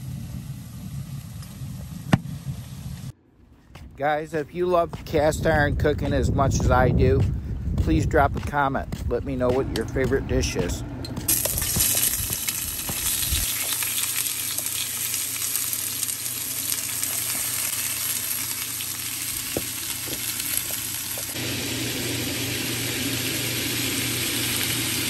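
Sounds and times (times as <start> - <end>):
food sizzling in a skillet: 11.3 - 25.0.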